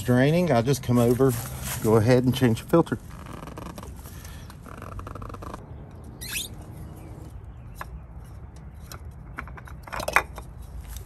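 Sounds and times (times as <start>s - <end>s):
oil filter scraping: 0.0s - 5.6s.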